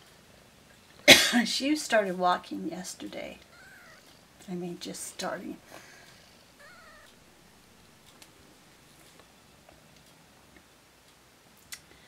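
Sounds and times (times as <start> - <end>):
kitten mewing: 3.4 - 4.2, 6.5 - 8.0
faint soft ticks: 6.0 - 8.4.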